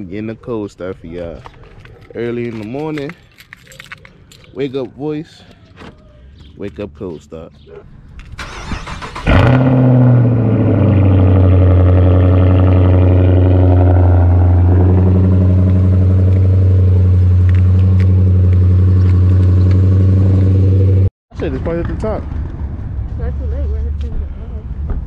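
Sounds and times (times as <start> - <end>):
car engine starting and idling: 8.1 - 21.1
car starter cranking: 8.2 - 9.9.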